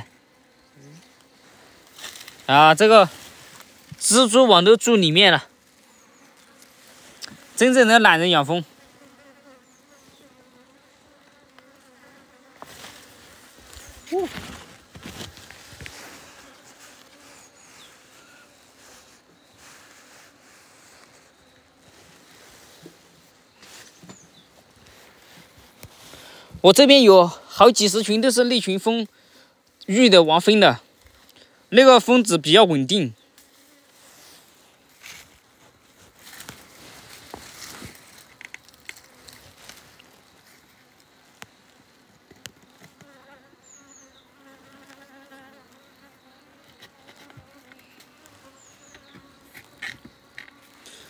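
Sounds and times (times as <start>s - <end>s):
honeybees humming: 0.0s - 27.1s, 37.1s - 51.0s
footsteps through long grass: 1.1s - 4.3s, 5.6s - 7.8s, 12.5s - 26.3s, 33.4s - 41.8s.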